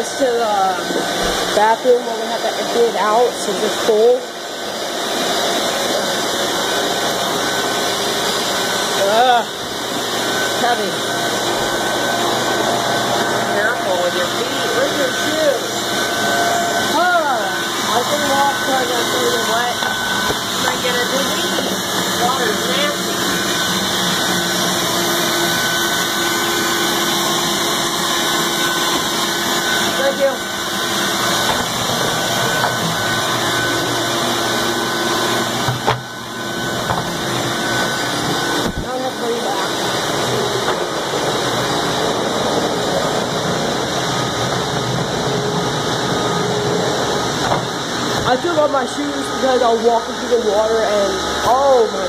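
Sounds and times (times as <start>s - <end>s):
shop vacuum motors running: 0.0s - 52.0s.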